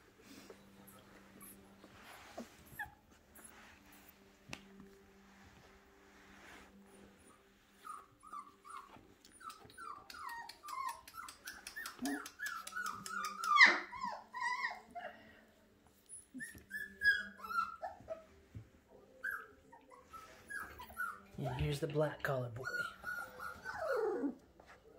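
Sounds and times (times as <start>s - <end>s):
puppies whimpering: 7.3s - 15.4s, 16.0s - 21.3s, 22.6s - 24.6s
puppy yelping: 7.9s - 14.8s, 22.6s - 24.4s.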